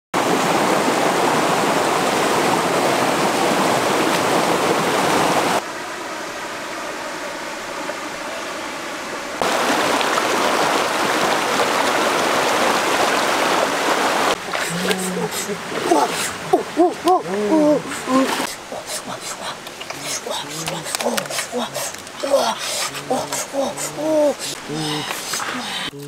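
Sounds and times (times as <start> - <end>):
stream rushing over rocks: 0.2 - 5.6, 7.6 - 25.9.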